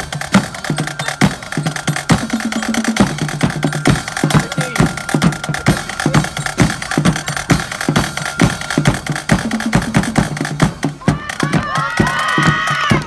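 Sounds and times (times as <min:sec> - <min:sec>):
bass drum marching beat: 0:00.0 - 0:13.0
snare drums: 0:00.0 - 0:13.0.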